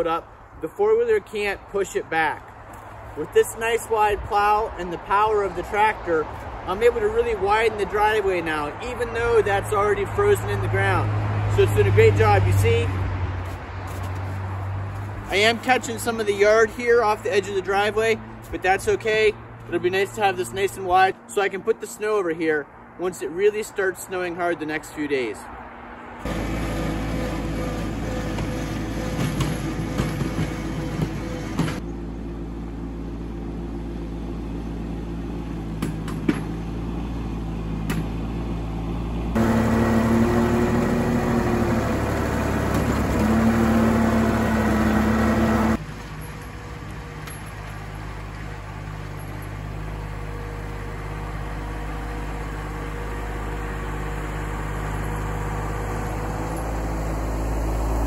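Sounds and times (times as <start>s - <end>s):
tractor diesel engine running: 26.2s - 58.0s.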